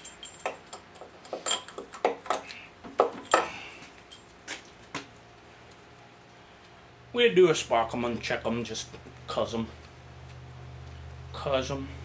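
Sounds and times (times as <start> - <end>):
socket wrench clinking on metal: 0.0 - 2.5.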